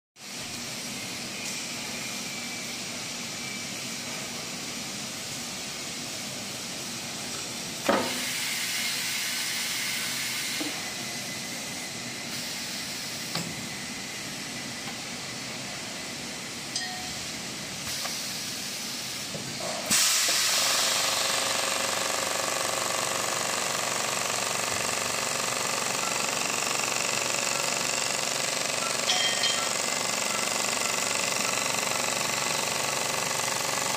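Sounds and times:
air hissing: 5.0s - 14.7s, 17.2s - 21.7s
sharp burst of air: 7.8s - 13.3s, 17.8s - 22.6s.

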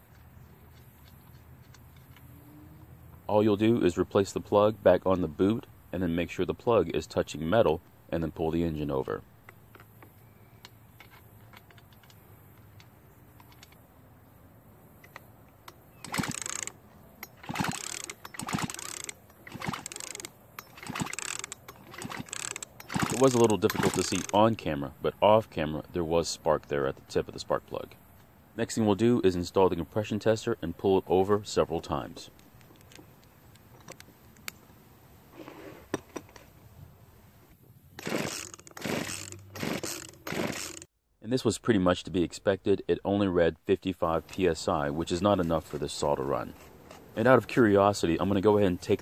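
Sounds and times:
chainsaw recoil starter pulls: 15.9s - 24.5s, 38.0s - 40.9s.

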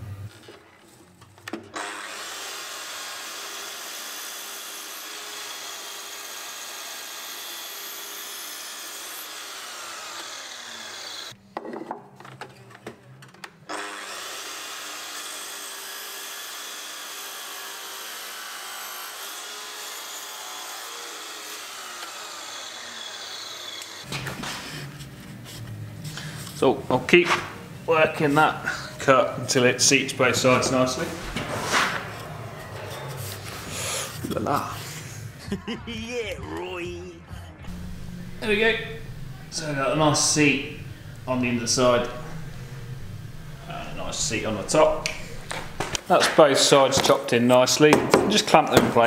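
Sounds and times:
mitre saw cutting wood: 1.8s - 11.4s, 13.7s - 25.0s, 37.7s - 47.3s
knocks: 47.9s - 49.0s.

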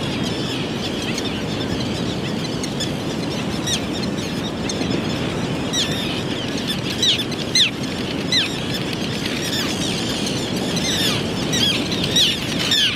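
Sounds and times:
terns calling: 0.0s - 12.9s.

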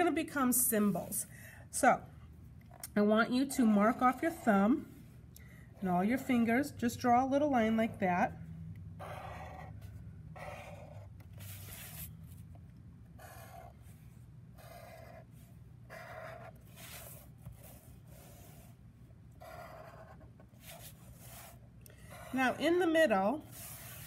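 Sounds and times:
marker drawing on paper: 9.0s - 12.4s, 13.2s - 18.8s, 19.4s - 24.0s.

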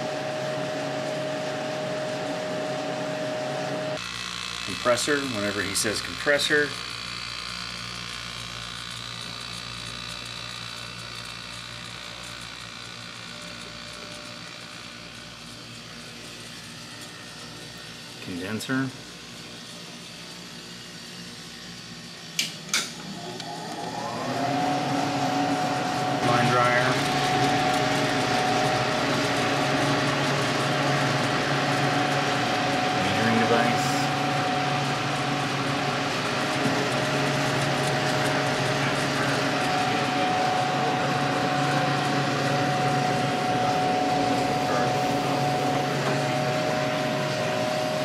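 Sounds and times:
fan air rushing: 0.0s - 4.0s, 20.2s - 48.0s
compressor electrical hum: 0.0s - 48.0s.

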